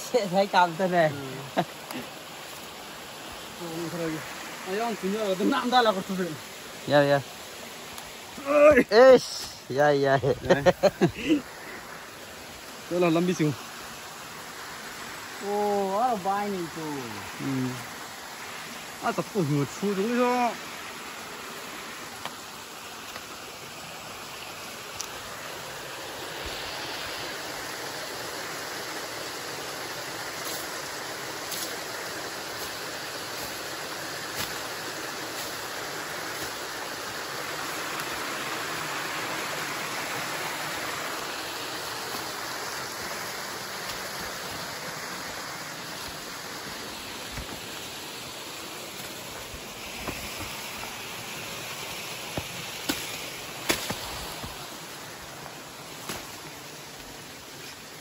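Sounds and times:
stream rushing: 0.0 - 58.0
footsteps through undergrowth: 45.5 - 58.0.

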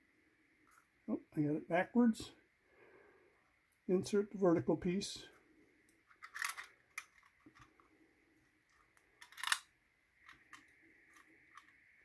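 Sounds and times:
plastic and metal parts clicking: 6.0 - 7.8, 9.0 - 11.8.

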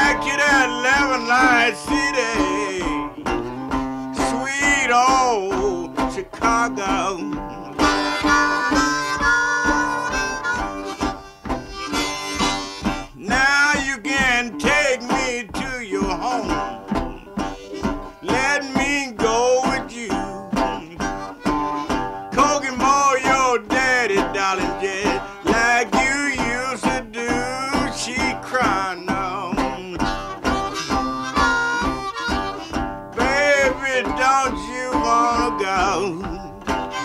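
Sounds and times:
blues harmonica: 0.0 - 37.0
rhythmic guitar accompaniment: 0.0 - 37.0.

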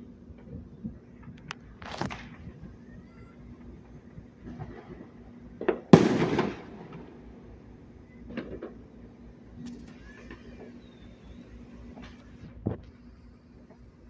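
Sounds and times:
fireworks popping: 0.3 - 14.0
loud firework bang: 4.5 - 7.6.

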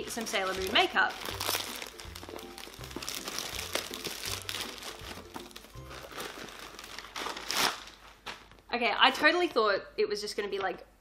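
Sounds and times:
plastic mailer bag crinkling: 0.0 - 8.6.

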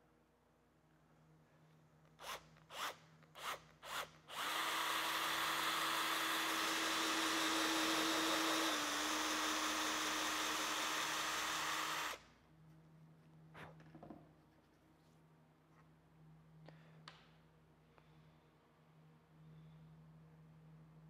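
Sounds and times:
cordless drill boring into wood: 2.2 - 12.2.

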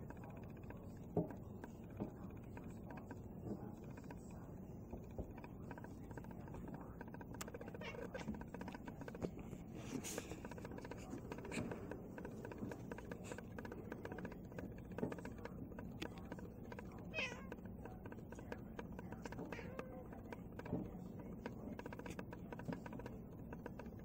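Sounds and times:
cat meowing: 7.6 - 8.4, 17.1 - 17.6.

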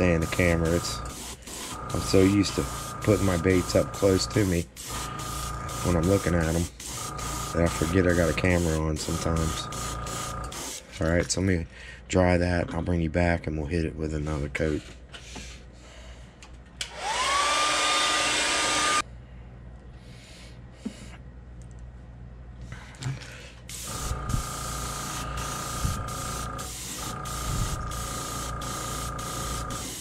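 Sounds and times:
airbrush spraying hiss: 0.0 - 10.8, 23.7 - 30.0
hair dryer whine: 16.8 - 19.0.

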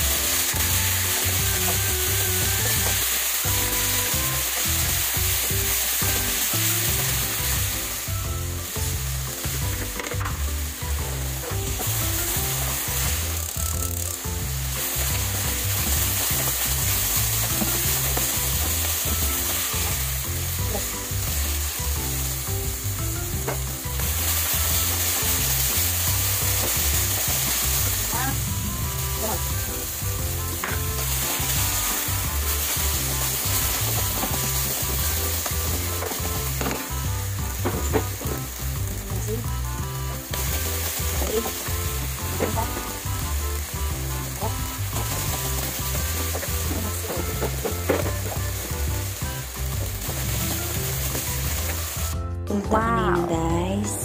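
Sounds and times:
food sizzling in a frying pan: 0.0 - 52.2
wooden spoon scraping a pan: 11.2 - 21.5, 43.6 - 49.0.

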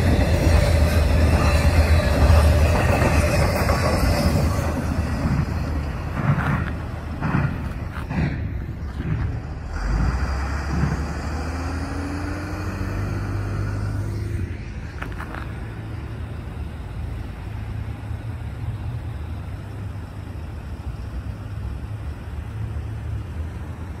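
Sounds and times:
low rumble: 0.0 - 11.8
truck engine driving past: 0.0 - 20.1.

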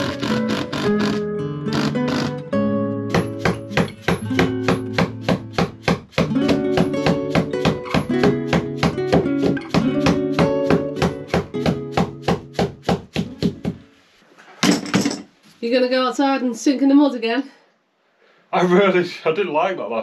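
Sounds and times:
acoustic guitar strumming: 0.0 - 5.5, 6.3 - 12.2.

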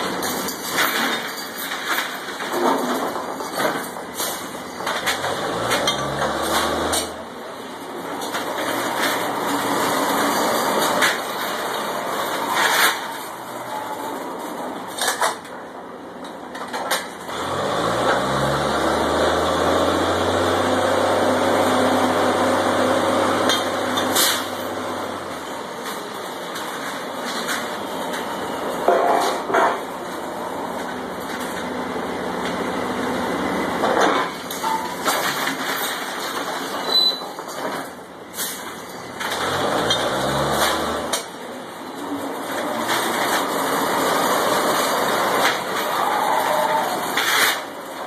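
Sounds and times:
drilling rig engine revving: 17.3 - 23.5, 39.3 - 41.1.

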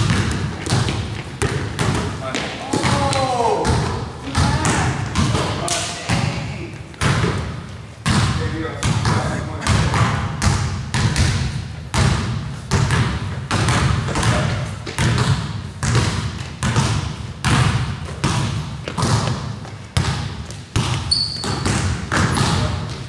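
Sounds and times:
basketball bouncing on hardwood: 0.0 - 6.4, 7.0 - 23.0
shoe squeak: 20.9 - 21.8.

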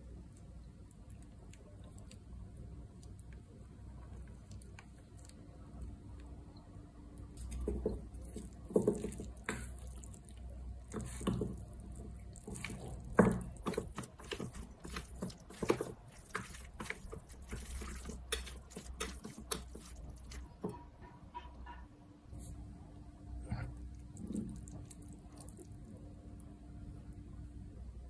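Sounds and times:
wet squelching of noodles: 7.3 - 20.6, 23.5 - 26.0.

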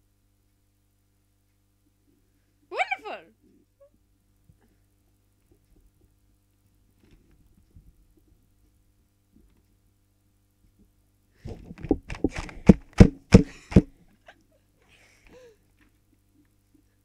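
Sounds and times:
puppets knocking and thumping: 11.5 - 13.9.

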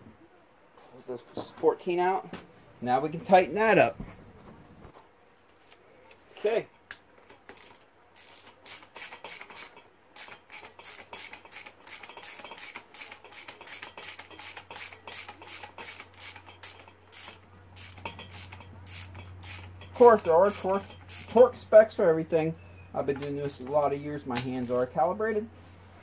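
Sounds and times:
wrench clicking: 7.2 - 21.4.

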